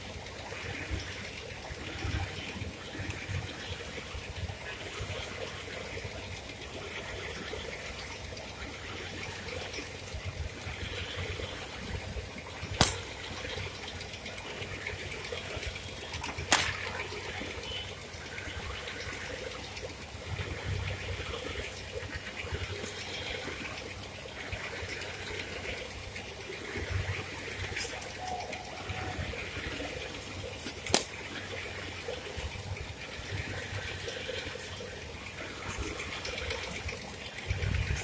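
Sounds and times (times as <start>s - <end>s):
wind rumble on microphone: 31.3s - 38.0s.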